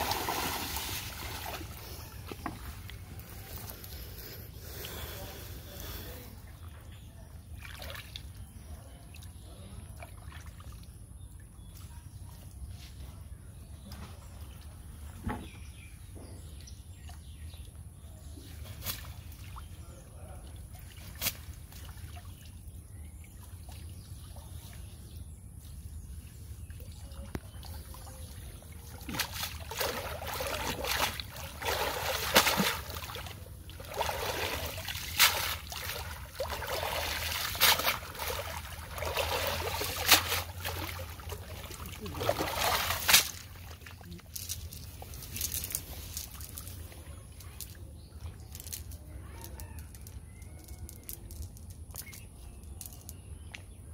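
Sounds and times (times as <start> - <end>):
water splashing off a net: 0.0 - 1.8, 28.9 - 46.7
sloshing from wading legs: 0.0 - 2.9, 27.5 - 44.1.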